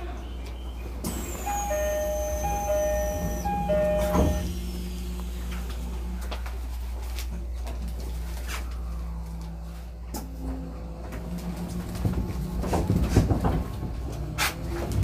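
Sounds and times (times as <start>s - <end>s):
standing train hum: 0.0s - 14.5s
sliding doors shutting thump: 1.1s - 4.6s
two-note door chime: 1.3s - 4.6s.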